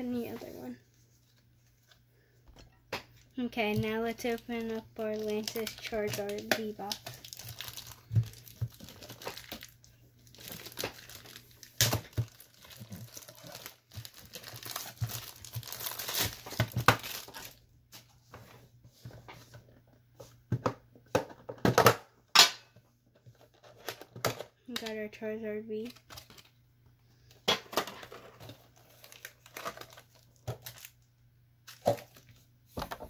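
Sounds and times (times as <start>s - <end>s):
plastic wrap crinkling and tearing: 3.8s - 17.6s, 25.8s - 26.5s, 27.7s - 31.0s.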